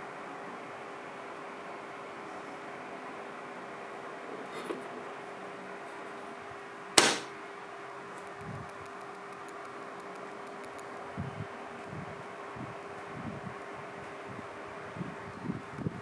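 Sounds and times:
steady hiss with hum: 0:00.0 - 0:16.0
plastic hood snapping shut: 0:07.0 - 0:07.3.

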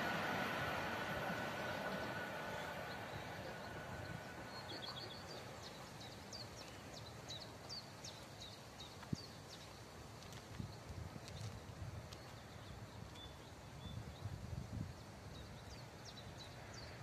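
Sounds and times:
faint freight train noise: 0:00.0 - 0:17.0
songbird chirping: 0:00.0 - 0:17.0.

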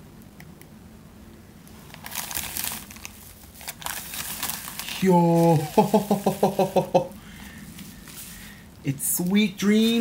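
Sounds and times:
padded mailer packaging crinkling: 0:01.8 - 0:06.8, 0:09.3 - 0:10.0.

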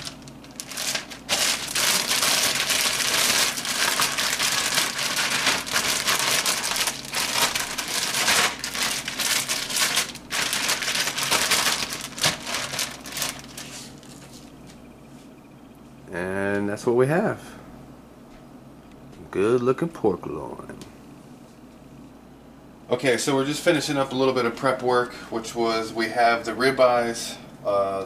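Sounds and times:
plastic bag crinkling: 0:00.0 - 0:14.7.

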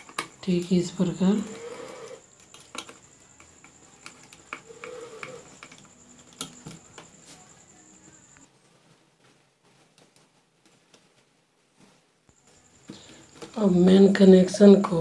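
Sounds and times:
faint high whine: 0:00.0 - 0:08.8.

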